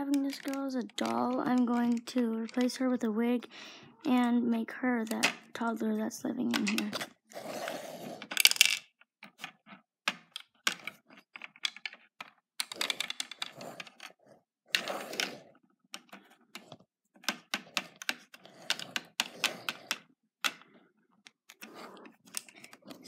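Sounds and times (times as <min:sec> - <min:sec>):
plastic bricks clicking and clattering: 0:00.0 - 0:02.9, 0:06.5 - 0:07.1, 0:08.2 - 0:23.0.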